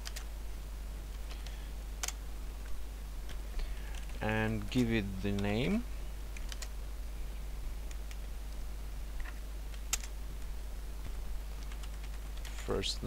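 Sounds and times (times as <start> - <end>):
computer keyboard keystrokes: 0.0 - 0.3, 1.4 - 2.2, 6.3 - 6.7, 9.2 - 10.1, 11.6 - 12.6
steady low hum: 0.0 - 13.0.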